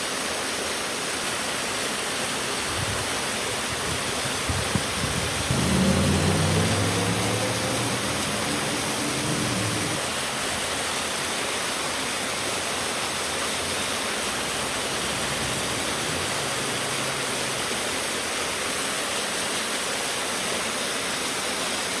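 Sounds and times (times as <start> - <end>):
waterfall rushing: 0.0 - 22.0
low hum: 4.5 - 10.0.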